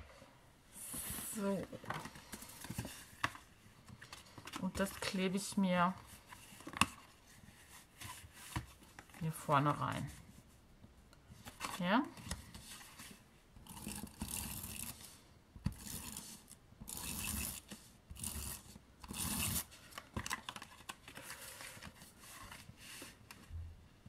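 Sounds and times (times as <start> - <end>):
paper rustling and sliding: 17.3 - 23.5.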